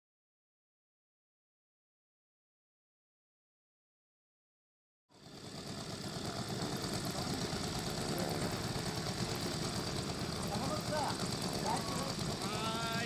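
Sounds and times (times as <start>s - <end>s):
model airplane engine running: 5.1s - 13.0s.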